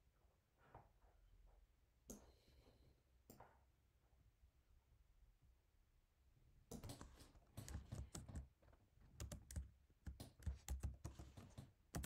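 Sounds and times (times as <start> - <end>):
computer keyboard typing: 6.7 - 8.5, 9.1 - 12.0.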